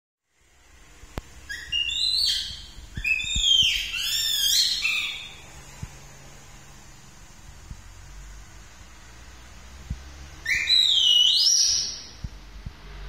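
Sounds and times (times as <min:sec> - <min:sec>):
monkey squealing: 0:01.5 - 0:05.4.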